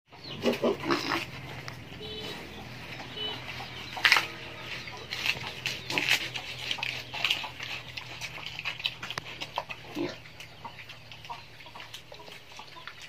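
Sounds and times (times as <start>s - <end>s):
pigs crunching and chewing: 0.1s - 13.0s
pig grunt: 0.4s - 1.3s, 9.4s - 10.3s.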